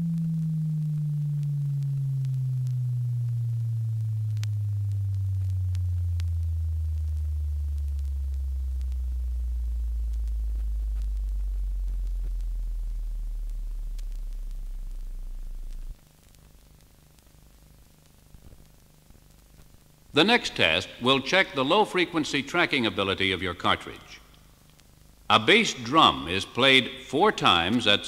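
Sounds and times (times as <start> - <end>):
faint tape ticks: 0.0 - 20.1, 23.9 - 25.3
descending sine test tone: 0.0 - 28.0.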